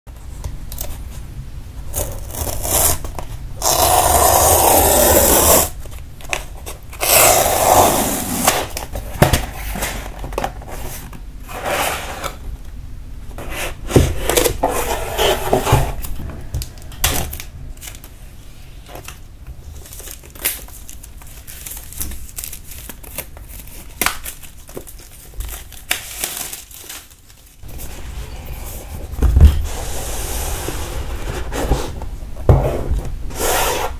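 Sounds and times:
packing tape tearing: 1.9s - 8.9s, 19.8s - 27.6s
box scraping: 9.4s - 12.4s, 13.4s - 16.2s, 27.6s - 33.9s.

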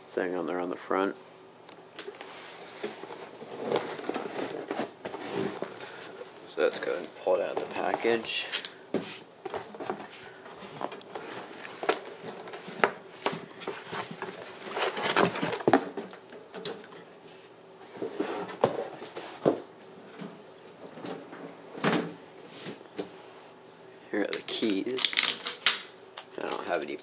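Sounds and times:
cardboard scraping and rustling: 2.2s - 6.1s, 9.0s - 16.0s, 17.8s - 19.6s.

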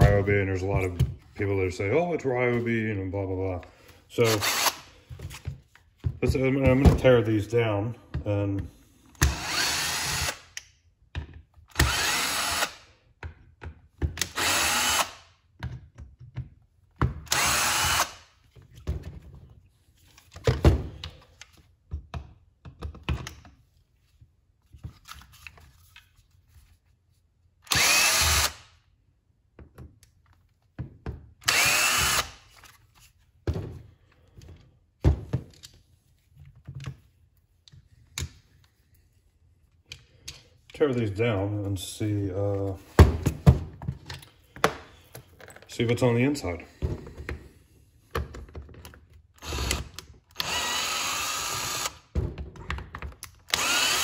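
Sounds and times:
power tool motor spinning up: 27.7s - 28.6s, 31.5s - 32.4s, 49.4s - 52.0s, 53.5s - 54.0s.

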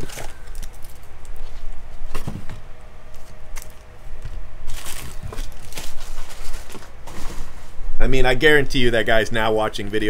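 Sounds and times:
foil packs crinkling: 0.0s - 1.8s, 3.1s - 3.9s, 4.7s - 7.6s.

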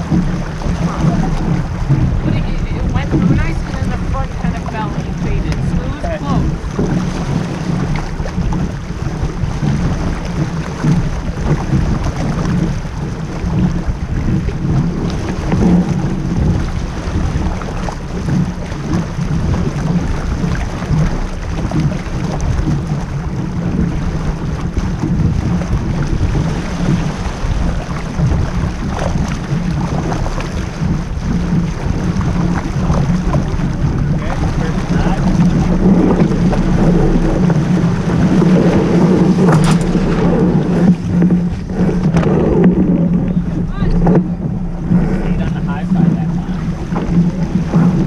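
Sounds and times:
water rushing along boat hull: 0.0s - 48.0s
wind buffeting microphone: 0.0s - 48.0s.

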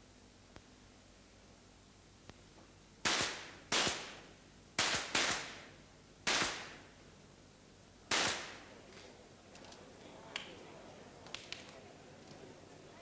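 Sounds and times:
pistol shots with echo: 3.0s - 4.2s, 4.8s - 5.7s, 6.3s - 6.8s, 8.1s - 8.7s.

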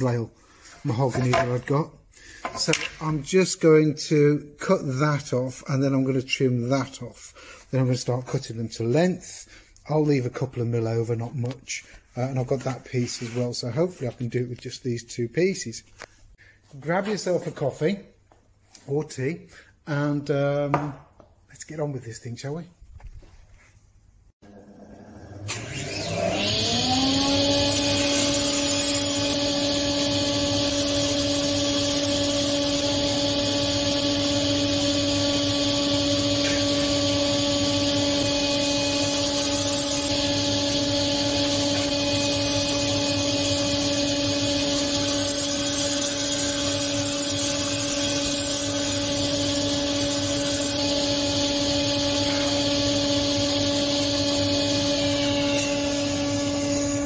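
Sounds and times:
table saw ripping wood: 25.3s - 57.0s.

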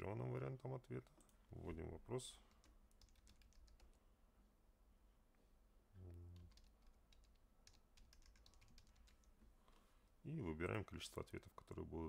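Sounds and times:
keyboard typing: 2.4s - 4.0s, 6.3s - 9.4s.

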